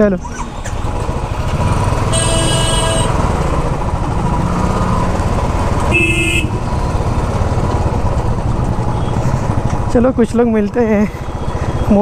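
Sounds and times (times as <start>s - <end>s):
motorcycle engine running: 0.3s - 11.1s
vehicle horn toot: 2.1s - 3.2s, 5.9s - 6.6s.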